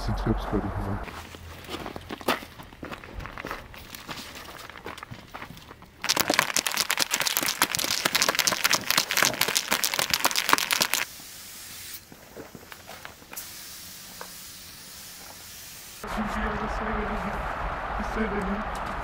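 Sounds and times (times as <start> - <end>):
spray cans rattling: 6.0 - 11.1
steady hiss: 10.2 - 16.1.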